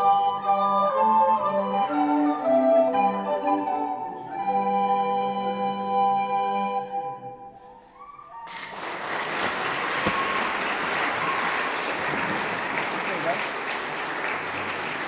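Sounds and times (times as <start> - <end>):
audience applause: 8.5 - 15.0.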